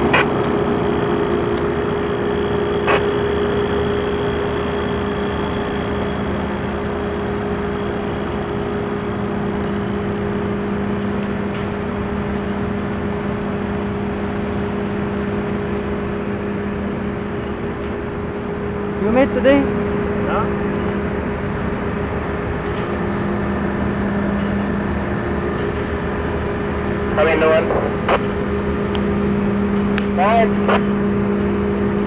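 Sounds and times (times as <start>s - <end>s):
compressor humming: 11.8s - 22.6s.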